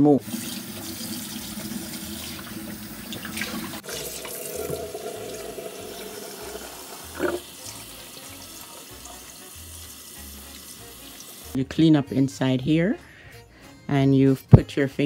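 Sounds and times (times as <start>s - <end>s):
tap water splashing into bowl: 2.2s - 5.4s.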